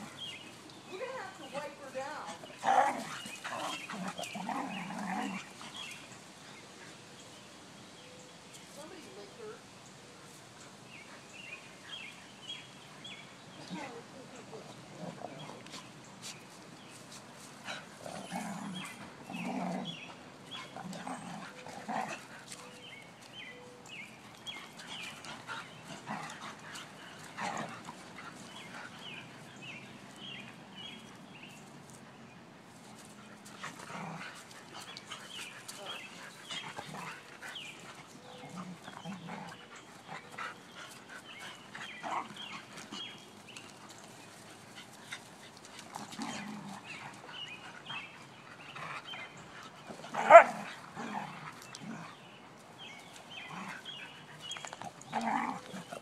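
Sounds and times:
dogs growling: 2.3 - 6.0, 17.7 - 22.5, 24.7 - 29.3, 33.5 - 43.2, 45.7 - 52.4, 53.3 - 56.0.

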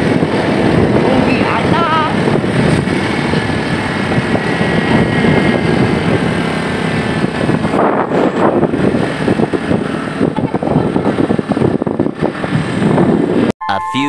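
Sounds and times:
motorcycle running: 0.0 - 13.5
wind rushing over microphone: 0.0 - 13.5.

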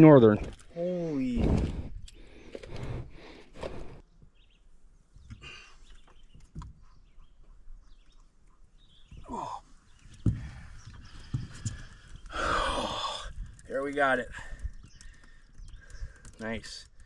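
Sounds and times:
short breaths: 10.4 - 13.6, 14.3 - 16.4.

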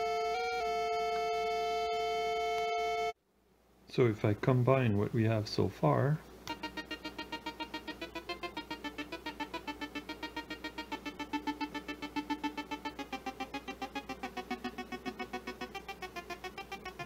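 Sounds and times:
buzzy synthesizer pulsing note: 6.5 - 17.0.

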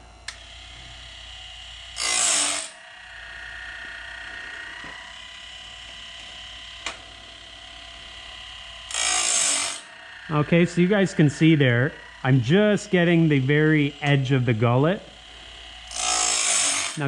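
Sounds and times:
grinding wheel motor whining: 0.0 - 17.0
stone grinding with harsh rasp: 2.0 - 2.7, 8.9 - 9.9, 15.9 - 17.0.

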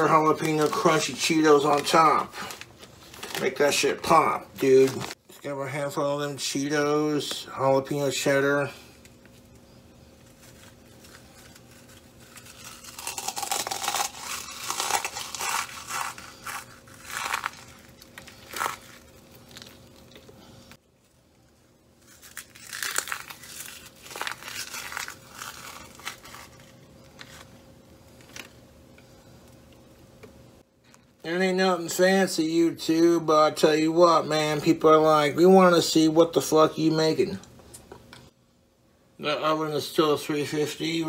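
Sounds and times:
faint steady hum: 0.0 - 41.0
snacks crunching by hand: 9.0 - 20.4, 22.0 - 28.6.

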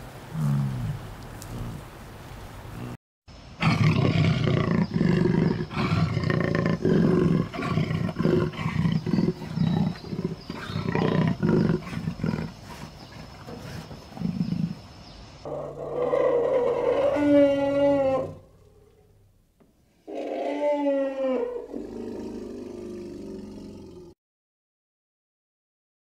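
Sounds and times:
tiger calling: 3.6 - 14.8, 15.4 - 19.1, 20.0 - 23.7.

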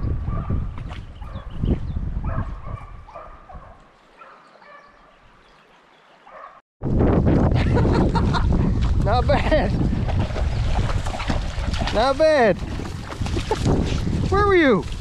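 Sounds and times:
wind on microphone: 0.0 - 3.9, 6.8 - 15.0
distant dog baying: 2.2 - 5.1, 6.3 - 6.6.

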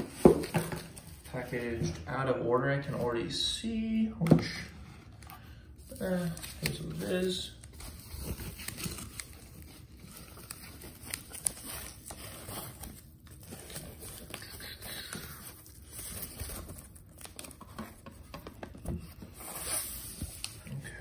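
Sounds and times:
foam wrap crinkling: 5.9 - 18.0.

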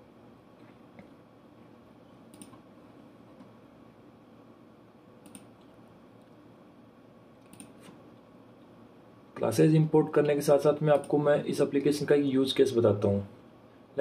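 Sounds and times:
faint room hiss: 0.0 - 14.0
computer mouse double clicks: 5.2 - 5.5, 7.4 - 7.8.

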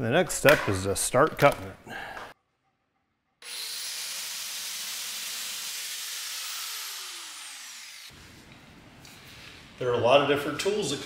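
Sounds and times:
angle grinder cutting wood: 3.4 - 8.2.

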